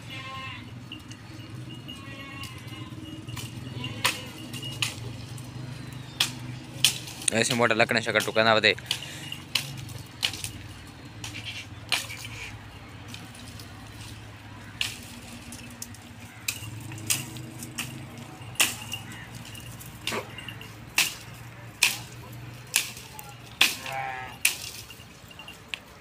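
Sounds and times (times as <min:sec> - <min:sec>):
dry twigs snapping: 0:05.9 - 0:07.5, 0:08.1 - 0:12.5, 0:14.6 - 0:18.0.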